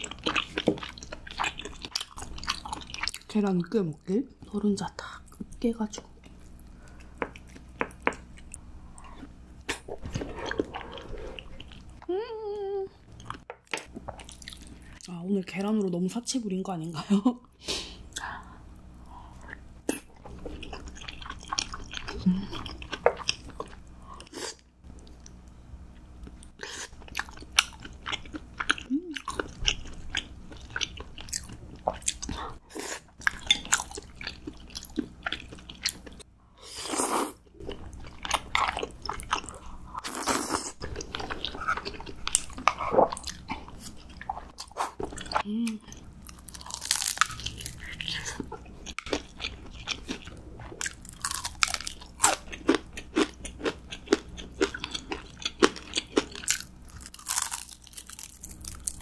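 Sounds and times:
crunchy bites and chewing: 46.2s - 59.0s.

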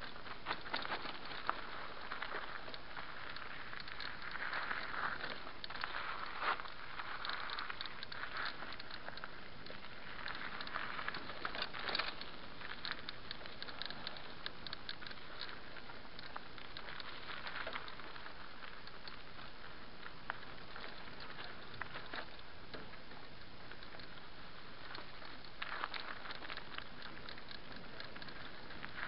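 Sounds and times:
bike clicking and rattling: 0.0s - 29.0s
bike tyres crackling over stones: 0.0s - 29.0s
steady rushing hiss: 0.0s - 29.0s.

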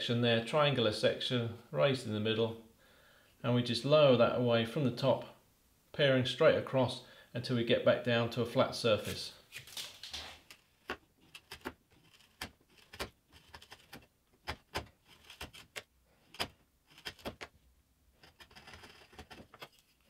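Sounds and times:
chisel scraping wood: 9.0s - 17.5s, 18.1s - 20.0s.

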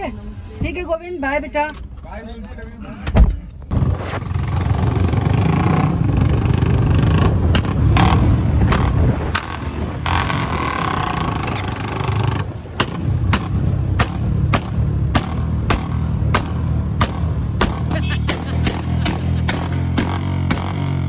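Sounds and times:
wind: 0.0s - 21.0s
motorcycle engine rumble: 2.8s - 21.0s
sharp crackles: 3.7s - 4.6s.

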